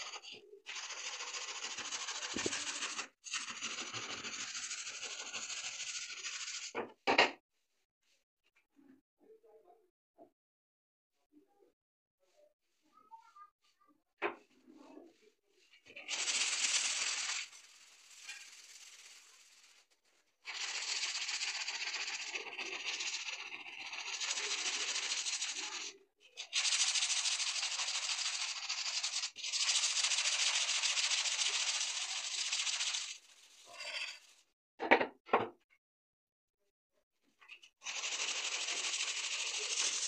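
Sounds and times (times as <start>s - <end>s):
abrasive block scraping saw blade: 0.0s - 6.8s.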